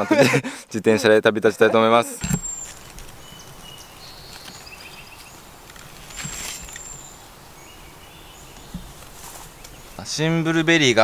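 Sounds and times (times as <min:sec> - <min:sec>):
soft outdoor background: 0:00.0 - 0:11.0
birds singing: 0:02.2 - 0:11.0.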